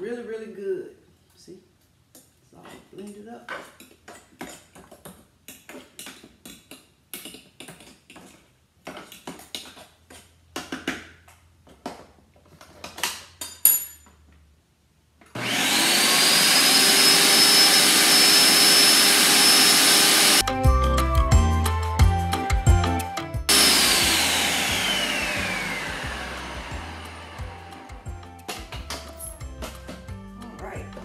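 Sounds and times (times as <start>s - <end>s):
clink: 13.5s - 14.2s
blender motor whine: 15.3s - 20.4s, 23.5s - 29.2s.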